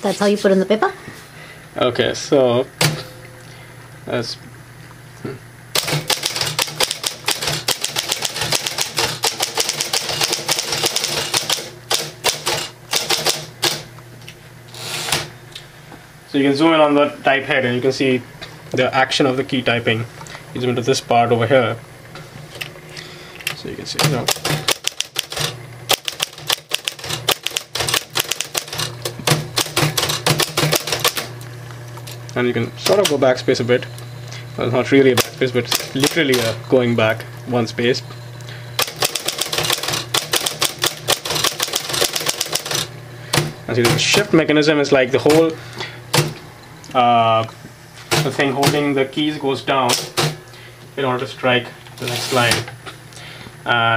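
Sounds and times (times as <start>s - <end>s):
typewriter motor hum: 5.7s - 13.9s, 14.7s - 15.4s, 23.4s - 46.4s, 48.0s - 48.9s, 49.7s - 50.4s, 52.0s - 52.7s
typewriter keys clacking: 5.8s - 13.8s, 24.0s - 31.3s, 38.8s - 42.9s.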